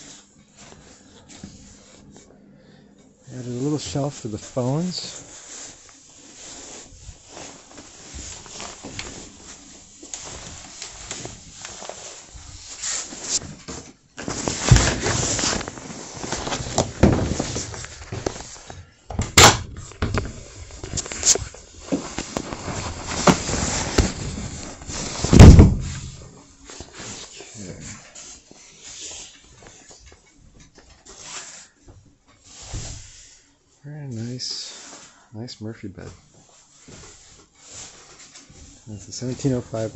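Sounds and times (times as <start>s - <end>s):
loud thump: 25.3s - 26.2s.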